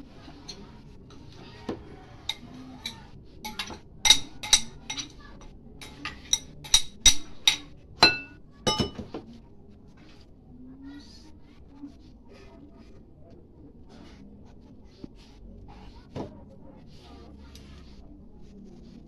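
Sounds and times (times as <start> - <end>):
spoon clinking against glass bowls: 2.3 - 5.2, 5.8 - 9.1.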